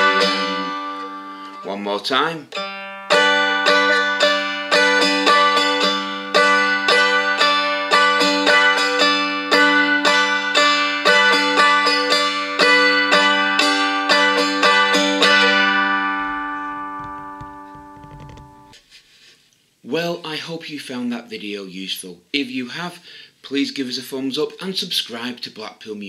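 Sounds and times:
strummed dulcimer: 0.0 - 18.7.

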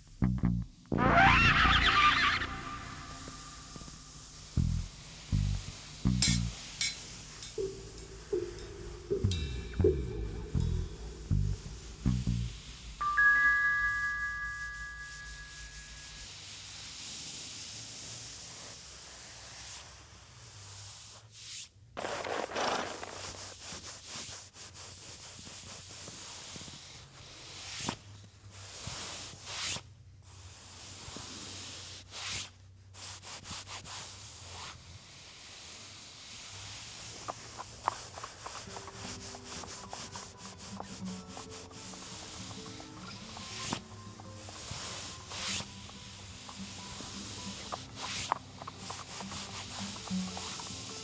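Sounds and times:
faint musical tones: 0.0 - 16.6, 38.3 - 51.0
hands rubbing dry powder: 1.9 - 9.3, 11.1 - 29.8, 30.5 - 34.8, 35.5 - 51.0.

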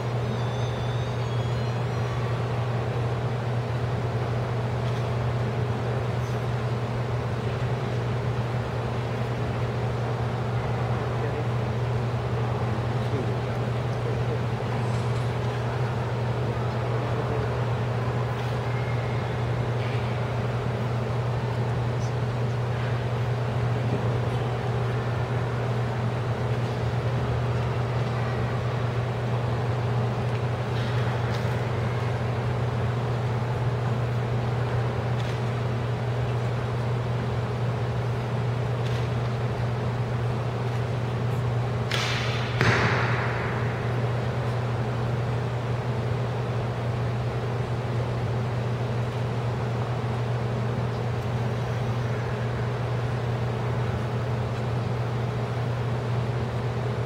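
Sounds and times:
steady low hum: 0.0 - 57.0
bowstring snap and twang: 41.9 - 44.0.

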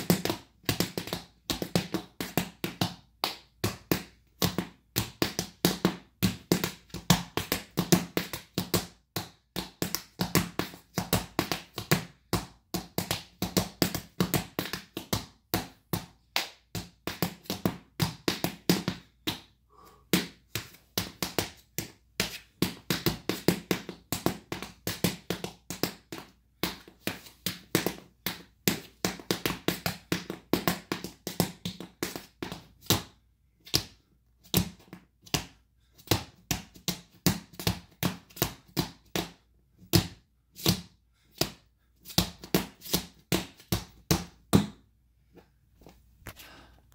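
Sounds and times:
tap shoes clicking on floor: 0.0 - 19.4, 20.2 - 33.1.

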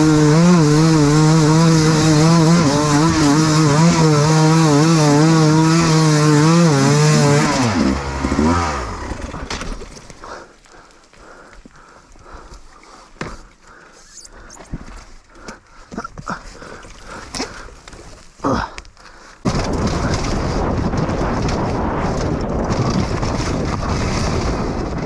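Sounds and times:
dirt bike rattling over bumps: 0.0 - 10.9, 19.3 - 25.0.

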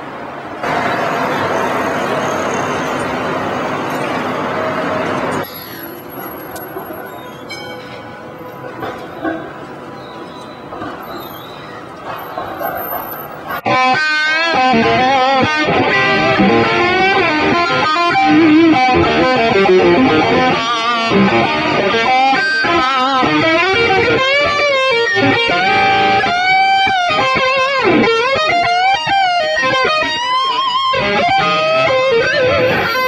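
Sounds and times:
electric guitar lead melody: 13.6 - 33.0.

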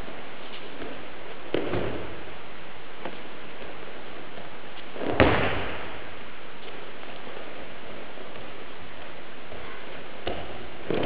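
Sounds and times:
background hiss: 0.0 - 11.0
body thudding on mat: 5.0 - 5.9.

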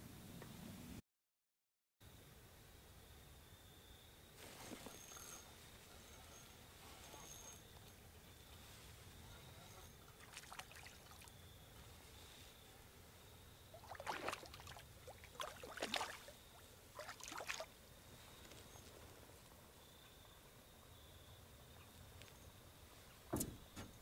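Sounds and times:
water splashing: 10.1 - 11.3, 13.7 - 17.8.

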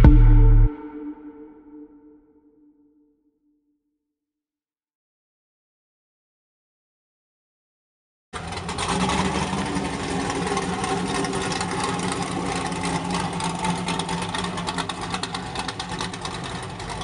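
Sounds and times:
car engine idling: 8.4 - 17.0.

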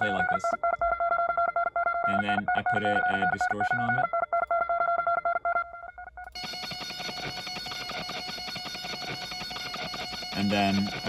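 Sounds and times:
distorted guitar tremolo picking: 6.3 - 11.0.

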